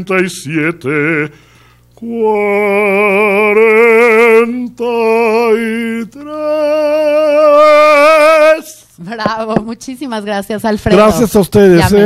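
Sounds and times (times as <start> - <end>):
tenor singing with vibrato: 2.0 - 8.8.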